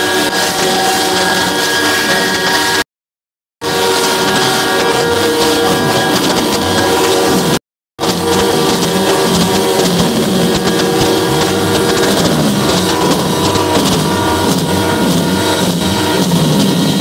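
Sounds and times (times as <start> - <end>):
truck horns blaring: 0.0 - 2.9, 3.6 - 17.0
truck engine running: 3.6 - 17.0.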